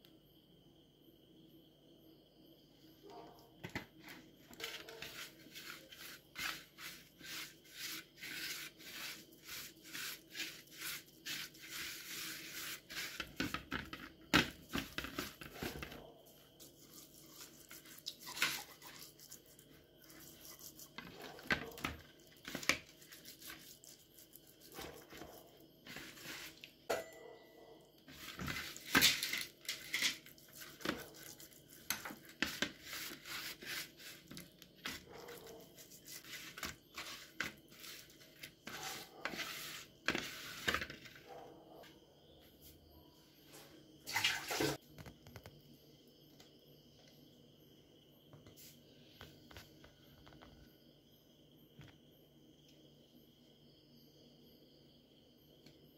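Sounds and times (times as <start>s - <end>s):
wet scrapes on ceramic plate: 5.0s - 13.5s, 16.7s - 21.0s.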